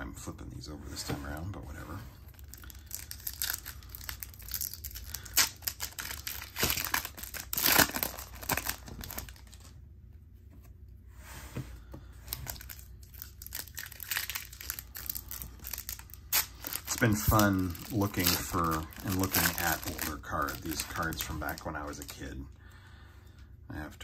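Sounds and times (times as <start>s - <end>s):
trading cards rustling and snapping: 2.4s - 9.7s, 12.3s - 22.2s.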